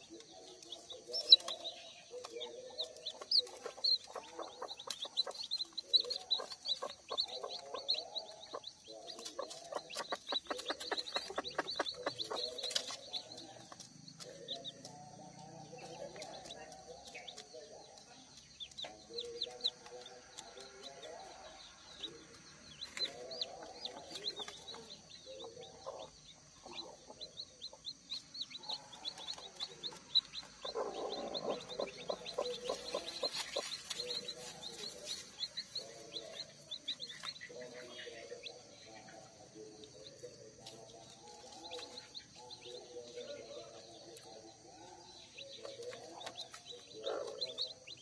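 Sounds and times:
chicks peeping: 0.0 - 48.0
hen clucking softly: 0.8 - 13.4, 22.9 - 38.5.

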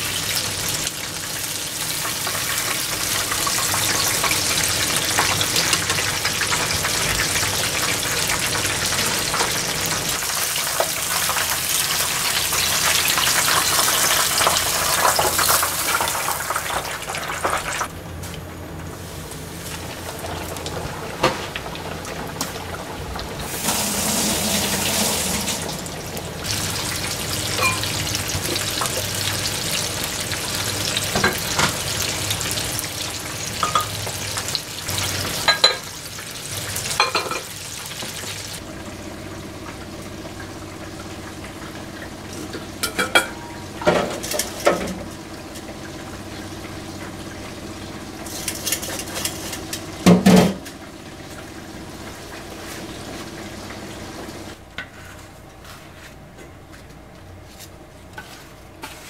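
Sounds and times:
oil sizzling in a frying pan: 0.0 - 17.9, 19.9 - 54.6
kitchenware clinking: 27.6 - 28.0, 33.6 - 34.1, 35.4 - 35.9, 37.0 - 37.5, 42.8 - 45.0.

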